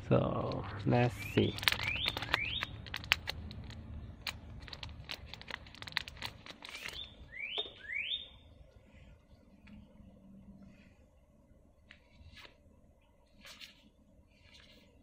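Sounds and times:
bird chirping: 0:01.1 - 0:03.1, 0:06.6 - 0:08.7
plastic wrap crinkling: 0:01.1 - 0:07.1.

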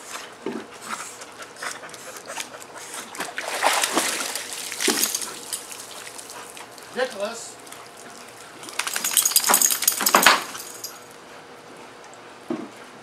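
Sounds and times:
pool water splashing: 0:02.1 - 0:10.8.

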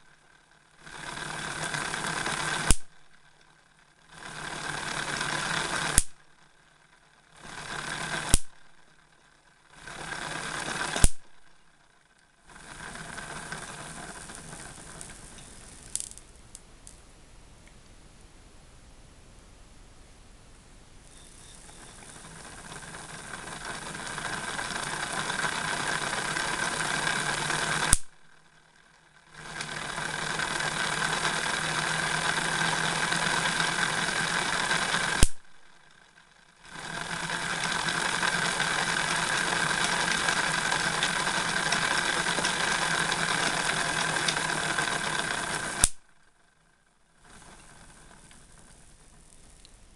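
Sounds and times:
spinning disks whirring: 0:00.0 - 0:16.4, 0:21.0 - 0:49.6
sharp spark crack: 0:06.0 - 0:06.2, 0:08.3 - 0:08.6, 0:11.0 - 0:11.3, 0:35.2 - 0:35.4.

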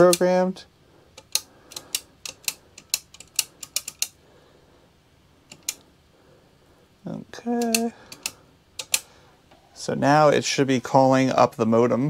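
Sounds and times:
sharp key clicks: 0:01.2 - 0:04.2, 0:05.5 - 0:05.8, 0:07.6 - 0:09.1.

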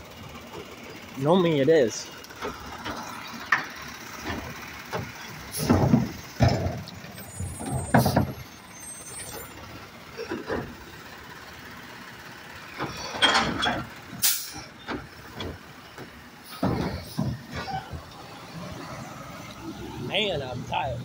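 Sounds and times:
garbage truck engine running: 0:00.0 - 0:21.0
metal clunks and clanks: 0:02.3 - 0:08.6, 0:09.2 - 0:10.9, 0:12.7 - 0:18.3.

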